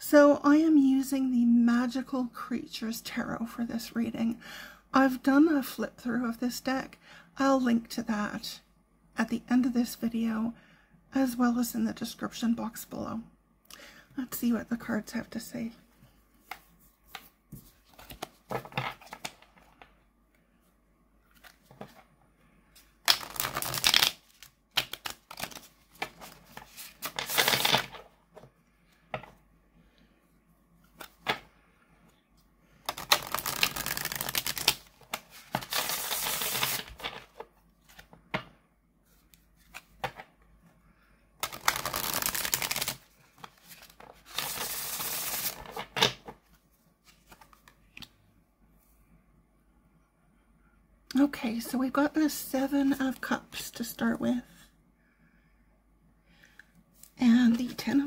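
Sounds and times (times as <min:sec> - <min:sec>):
playing cards riffle shuffled: 0:22.8 - 0:28.0, 0:32.9 - 0:38.1, 0:41.4 - 0:45.9.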